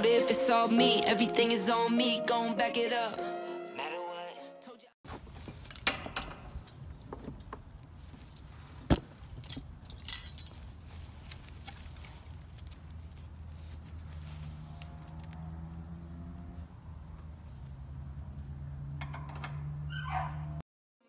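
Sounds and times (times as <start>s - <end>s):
metal fittings clinking: 9.2s - 10.6s.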